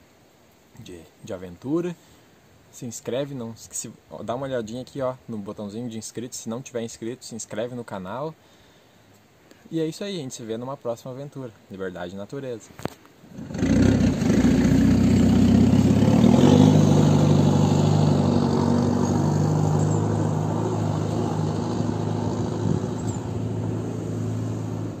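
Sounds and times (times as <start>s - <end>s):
pickup truck engine pulling away: 13.3s - 25.0s.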